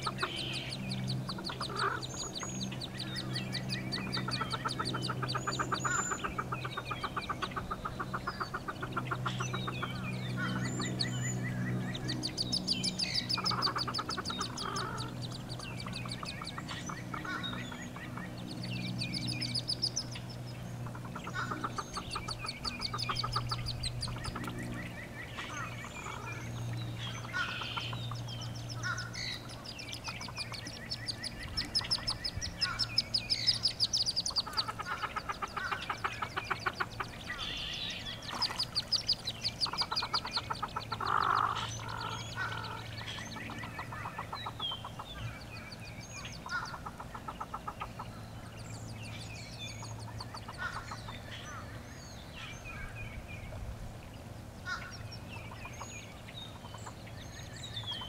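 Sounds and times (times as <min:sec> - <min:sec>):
duck clucking: 0:00.0 - 0:11.0, 0:13.1 - 0:18.3, 0:20.8 - 0:24.7, 0:27.2 - 0:37.6, 0:38.3 - 0:45.2, 0:46.4 - 0:48.1
ducklings peeping: 0:00.0 - 0:58.0.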